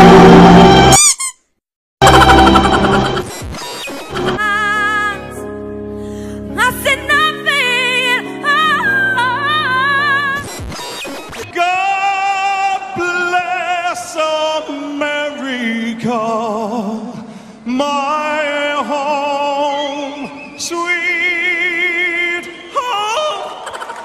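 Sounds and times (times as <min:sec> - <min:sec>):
man singing: 0:11.5 - 0:23.6.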